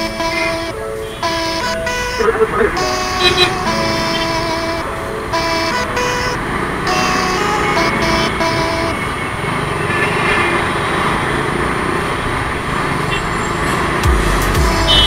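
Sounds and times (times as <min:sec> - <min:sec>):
vehicle horn toots: 0:00.0 - 0:10.2, 0:14.6 - 0:15.0
road traffic rush: 0:00.0 - 0:15.0.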